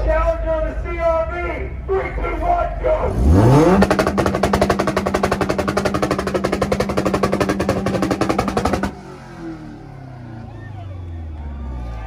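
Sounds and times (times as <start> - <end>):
car engine on rev limiter: 3.1 - 12.0
exhaust popping and banging: 3.3 - 9.0.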